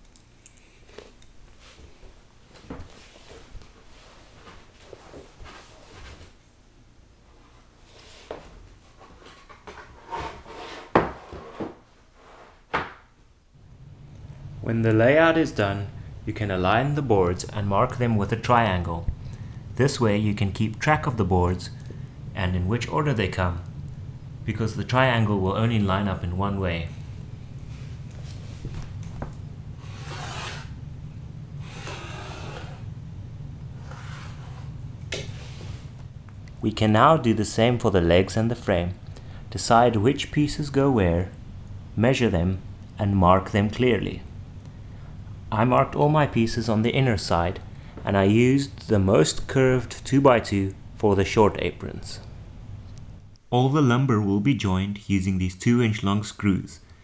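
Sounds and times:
steady low hum: 0.0 - 57.0
boards scraping on wood floor: 7.9 - 12.8, 33.8 - 35.9
pen scratching on wood: 30.0 - 30.7.

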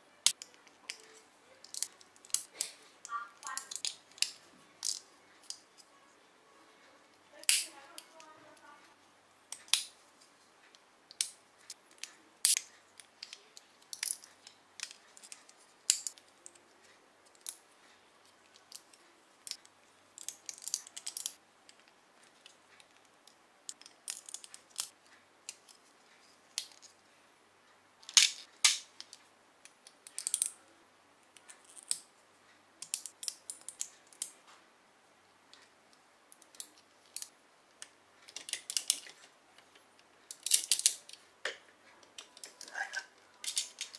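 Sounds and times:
plastic bricks clicking and snapping: 0.2 - 5.6, 7.4 - 8.3, 9.5 - 9.9, 11.1 - 16.6, 18.4 - 25.8, 28.0 - 30.6, 32.8 - 34.4, 36.3 - 43.9.

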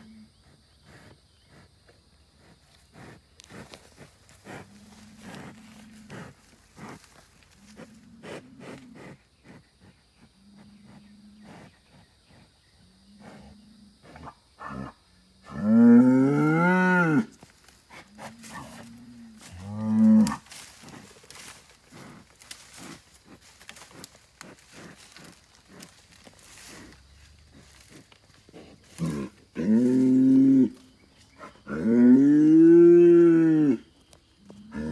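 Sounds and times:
hooves scraping dirt: 2.4 - 9.2, 17.1 - 32.1
bull bellowing and grunting: 2.4 - 17.3, 17.9 - 33.9, 34.5 - 34.9.

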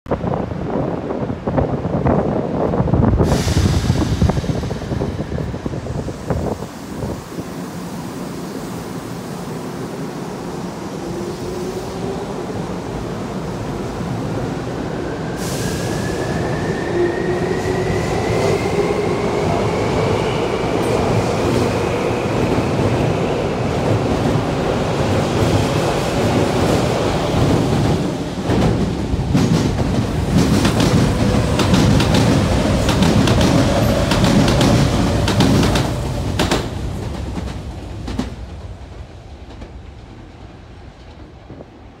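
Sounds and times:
electric train rumble: 0.2 - 42.0
train wheels clacking over rail joints: 27.4 - 38.4.

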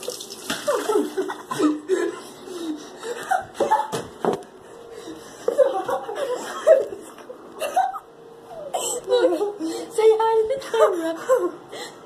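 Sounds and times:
children laughing and gasping: 0.9 - 4.0, 4.9 - 8.0, 8.6 - 10.0.

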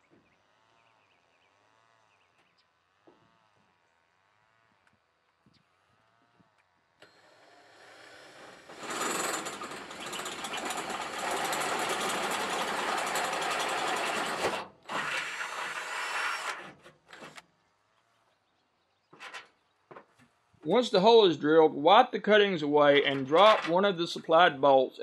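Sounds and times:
cordless drill boring steel: 7.0 - 17.4.

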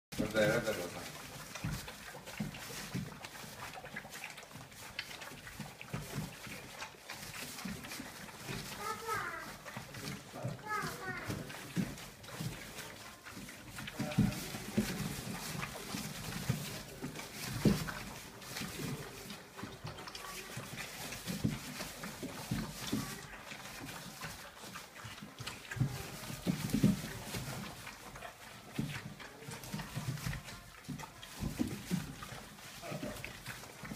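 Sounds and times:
puppies smacking and snuffling: 0.1 - 33.9
puppies grunting: 0.2 - 33.9
shredded newspaper crackling: 8.6 - 9.5, 10.6 - 11.3.

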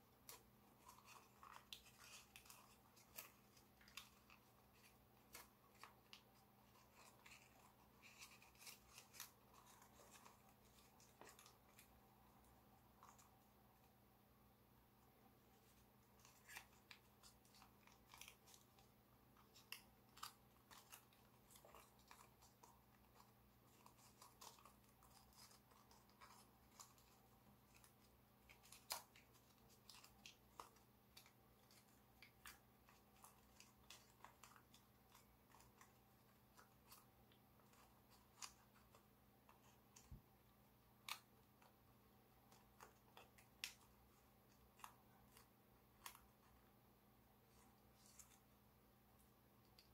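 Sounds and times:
foil paper crinkling: 0.2 - 12.0, 15.6 - 40.2.

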